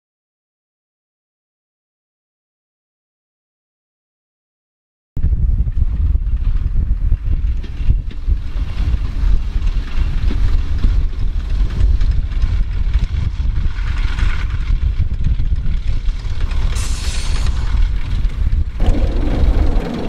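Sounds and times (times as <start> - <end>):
wind buffeting microphone: 5.2 - 20.0
distant diesel railcar running: 7.2 - 20.0.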